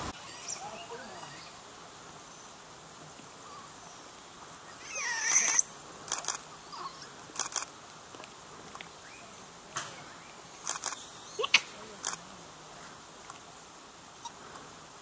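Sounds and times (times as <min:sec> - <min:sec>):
high squeaky animal calls: 0:04.7 - 0:05.8, 0:06.7 - 0:07.3.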